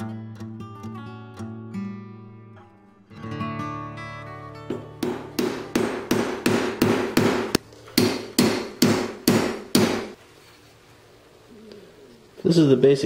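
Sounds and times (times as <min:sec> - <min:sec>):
hammer striking brass on steel: 0:04.7 - 0:10.2.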